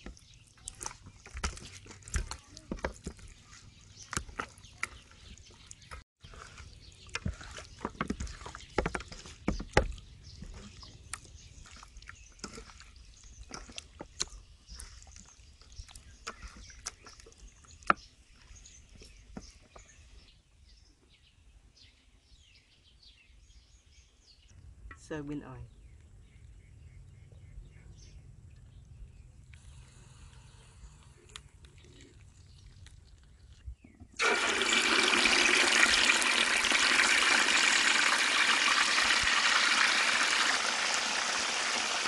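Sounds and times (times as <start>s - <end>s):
hands squishing raw chicken: 0.0s - 19.4s.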